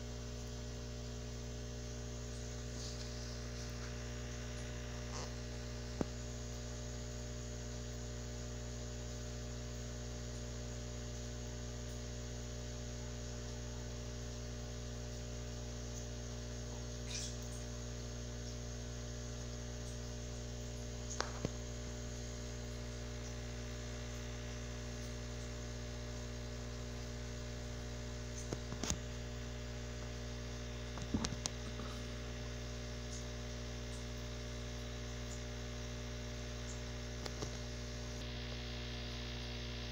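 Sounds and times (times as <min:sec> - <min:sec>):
steady electrical hum: 0:00.0 - 0:39.9.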